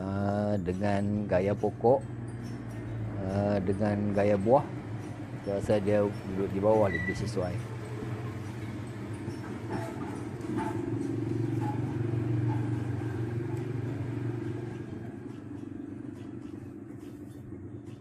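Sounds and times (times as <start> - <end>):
vehicle engine passing by: 2.1 - 16.4.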